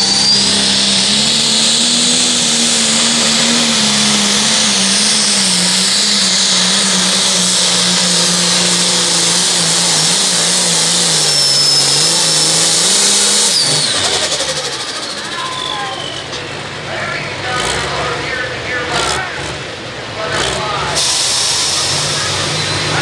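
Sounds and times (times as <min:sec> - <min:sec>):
high whistle: 0:00.0 - 0:01.0, 0:11.2 - 0:16.4
tractor engine at full throttle: 0:00.0 - 0:23.0.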